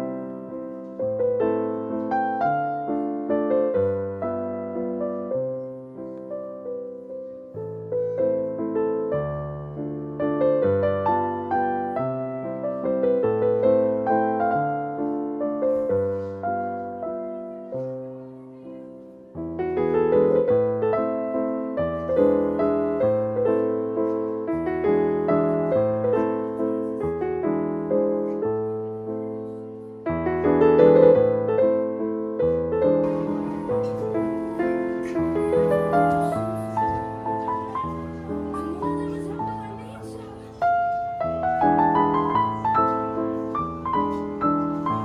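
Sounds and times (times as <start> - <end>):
slow gentle piano music: 0.0 - 45.0.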